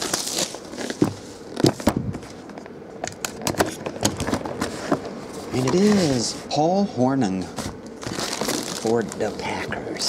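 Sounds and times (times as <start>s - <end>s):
hands opening cardboard box: 0.0s - 2.5s, 7.6s - 9.2s.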